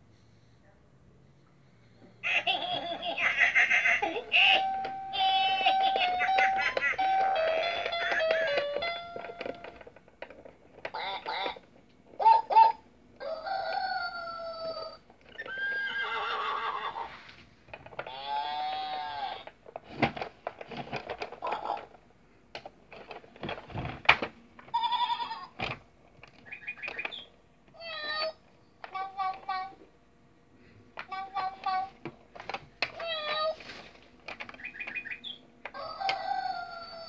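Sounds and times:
toy playing farm animal calls: 2.2 - 9.9, 10.8 - 16.0, 18.0 - 19.5, 24.7 - 25.6, 26.4 - 29.8, 31.0 - 32.0, 32.9 - 33.6, 34.4 - 37.0.

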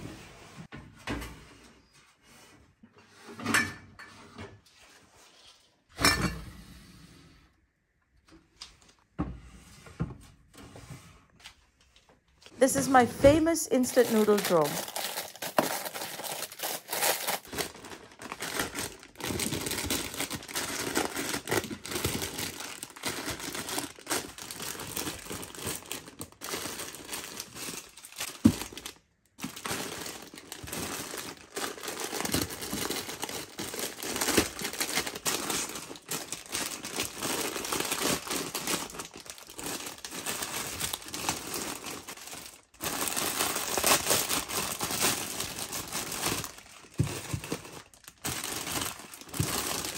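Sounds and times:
plastic packets crinkling: 12.5 - 49.9.

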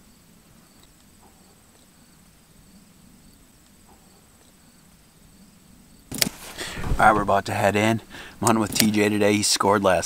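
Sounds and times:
insect drone: 0.0 - 8.4
soft ticks: 0.7 - 1.9, 3.6 - 4.6.

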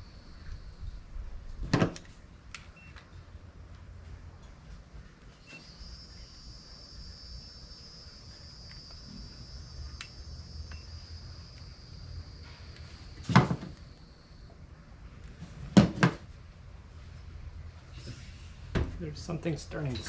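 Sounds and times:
high-pitched electronic whine: 0.0 - 1.3, 5.3 - 14.6.

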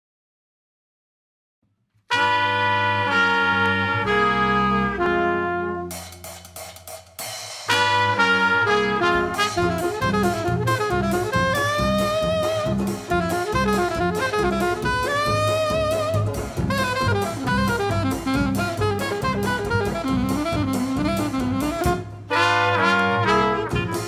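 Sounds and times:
alto saxophone melody: 2.1 - 6.1, 7.7 - 24.0
jazz band playing: 2.1 - 24.0.

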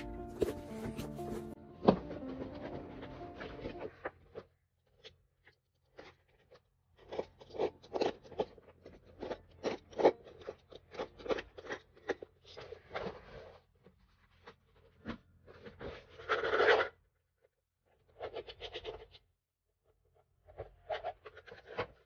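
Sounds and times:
hand rubbing canvas: 0.0 - 4.0
canvas crinkling and rustling: 0.0 - 4.2.

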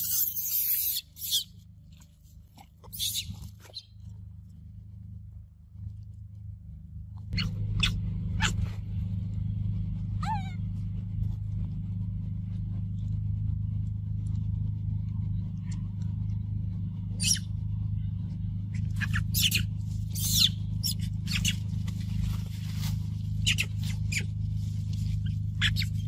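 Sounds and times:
steady low hum: 0.0 - 26.0
rustling in dry leaves and dirt: 0.1 - 6.5, 18.9 - 26.0.

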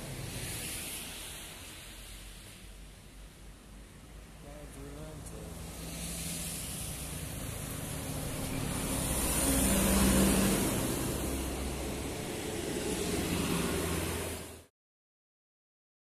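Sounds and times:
smaller bus passing: 0.0 - 14.7
tyres hissing on road: 0.0 - 14.7
coach diesel engine passing: 4.2 - 14.7.

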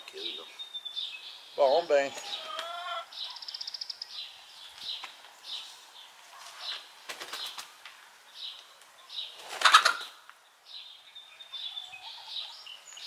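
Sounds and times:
high bird chirps: 0.2 - 5.7
hen flapping wings: 6.5 - 7.8, 9.4 - 10.1.

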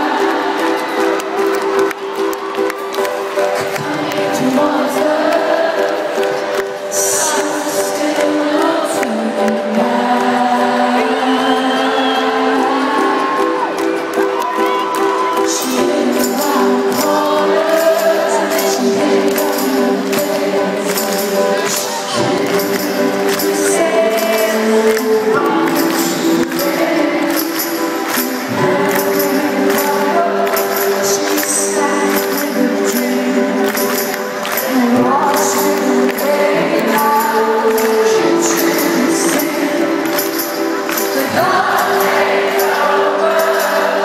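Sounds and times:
woman singing: 3.6 - 14.0, 14.6 - 44.0
jingling tambourine percussion: 15.2 - 44.0.

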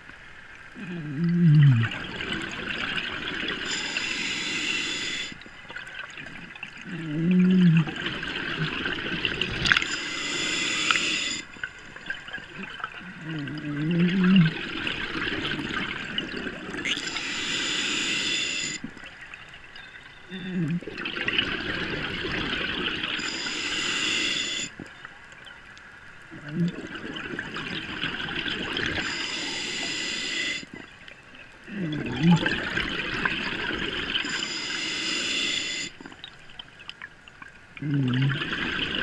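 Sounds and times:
gurgling exhaled bubbles: 0.8 - 19.3, 20.3 - 24.9, 26.3 - 31.0, 31.6 - 36.6, 37.8 - 39.0
hissing regulator inhale: 3.6 - 5.4, 9.8 - 11.8, 16.9 - 18.8, 23.2 - 24.8, 29.0 - 30.8, 34.2 - 36.0.

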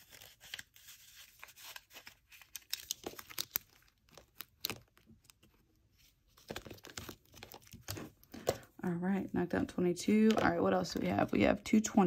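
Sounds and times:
paper envelopes rustling: 0.0 - 8.7.

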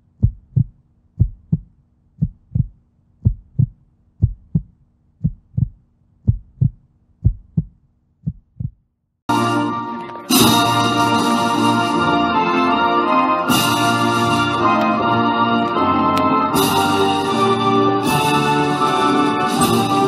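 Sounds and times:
heartbeat thumps: 0.0 - 8.9
music: 9.3 - 20.0.

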